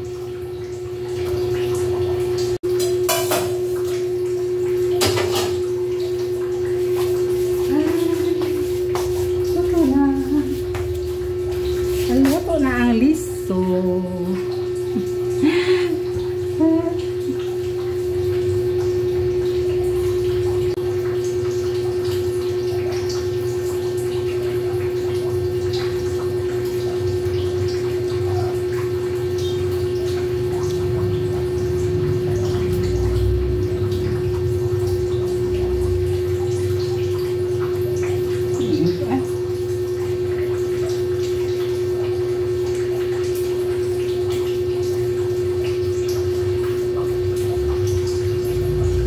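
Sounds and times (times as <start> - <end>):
electric fan humming: 0.0 - 42.0, 44.0 - 49.0
brief wavering sound: 47.6 - 49.0.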